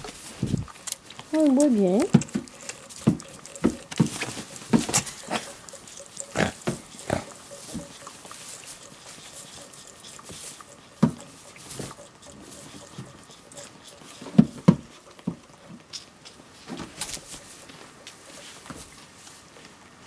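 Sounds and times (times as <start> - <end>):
goat kids calling: 2.2 - 14.3
rustling in straw: 3.4 - 12.9.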